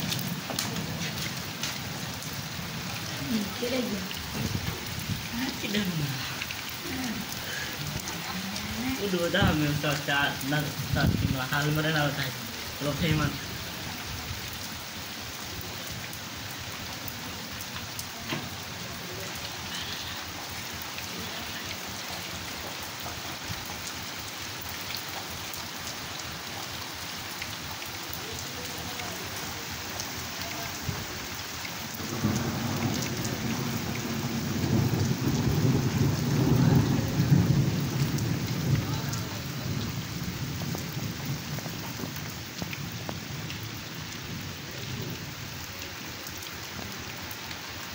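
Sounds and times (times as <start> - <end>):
thunder rolling: 0.0 - 7.3, 8.6 - 11.9, 32.0 - 43.6
heavy rain falling: 0.0 - 47.9.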